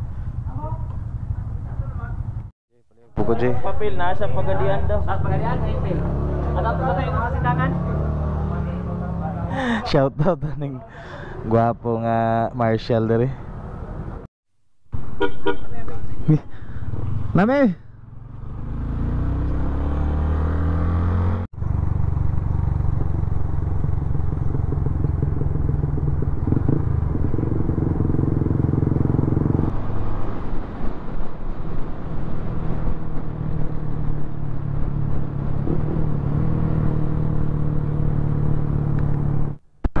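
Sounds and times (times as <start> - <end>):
road and wind noise: 0.0 - 14.3, 14.9 - 40.0
motorcycle engine running: 16.3 - 29.7.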